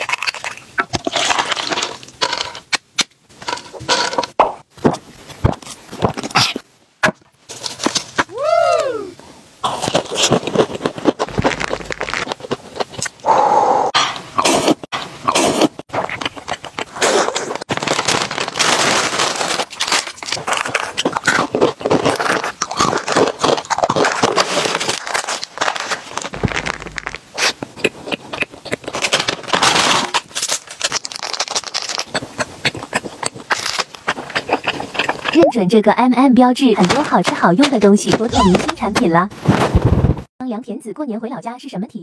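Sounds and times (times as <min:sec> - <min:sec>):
snack packaging crinkling: 0:00.0 - 0:06.6, 0:09.6 - 0:13.2, 0:15.9 - 0:35.4.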